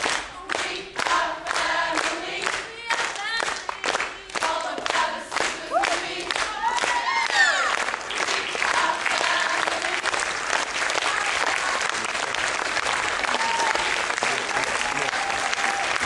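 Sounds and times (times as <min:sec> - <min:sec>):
audience applauding: 0:00.0 - 0:16.0
people cheering and whooping: 0:05.7 - 0:07.8, 0:13.2 - 0:16.0.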